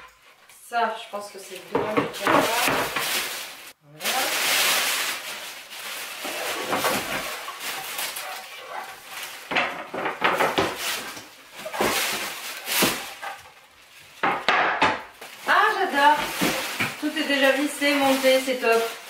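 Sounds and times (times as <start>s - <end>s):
foam packing sheet crinkling: 1.1s - 14.4s, 15.1s - 19.0s
wooden panels knocking: 9.5s - 10.8s, 14.2s - 15.1s.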